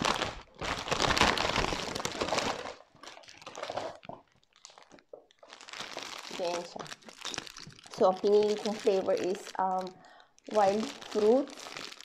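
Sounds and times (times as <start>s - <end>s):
plastic bag crinkling: 0.0s - 12.0s
wrapping paper tearing and rustling: 0.0s - 12.0s.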